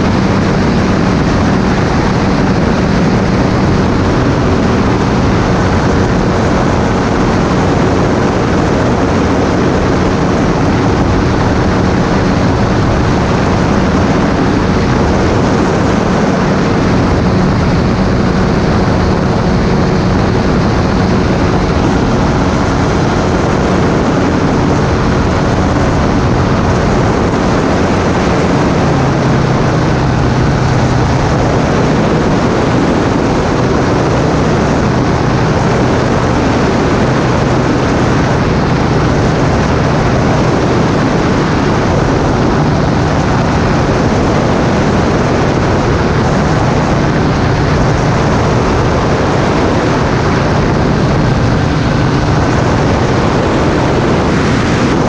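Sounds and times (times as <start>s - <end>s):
microlight engine and propeller: 0.0s - 55.0s
rush of noise: 0.0s - 55.0s.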